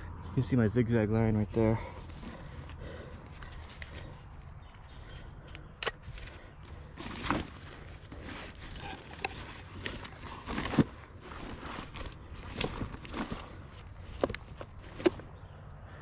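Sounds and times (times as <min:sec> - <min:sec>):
footsteps crunching on dirt: 0:05.9 - 0:15.4.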